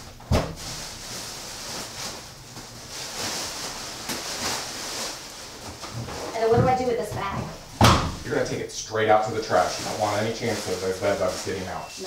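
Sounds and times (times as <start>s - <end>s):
plastic bag rustling and crinkling: 0.3s - 12.0s
thump: 7.8s - 8.2s.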